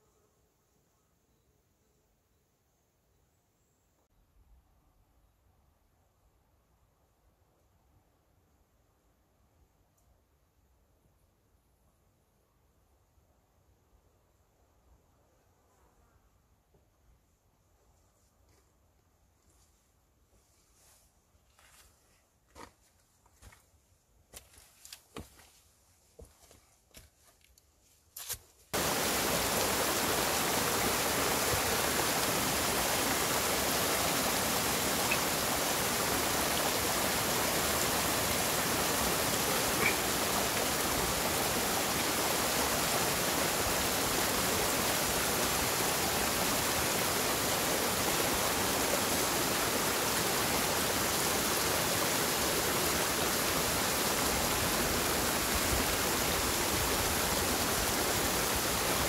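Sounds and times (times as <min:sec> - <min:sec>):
rushing stream water: 0:28.8 - 0:59.0.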